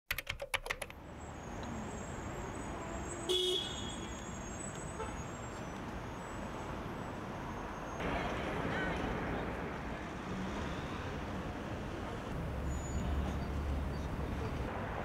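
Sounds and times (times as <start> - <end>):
city street traffic: 0.6 - 15.0
car horn toot: 3.3 - 4.1.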